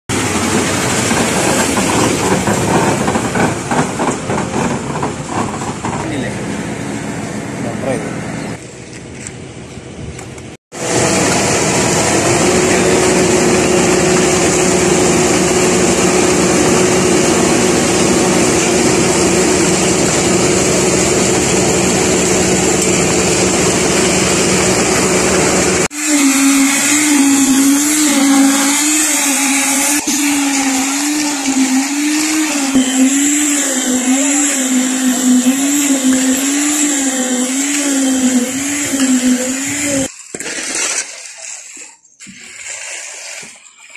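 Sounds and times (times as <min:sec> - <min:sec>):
machinery motor humming: 0:00.1 - 0:40.1
motor with wavering pitch: 0:10.8 - 0:40.1.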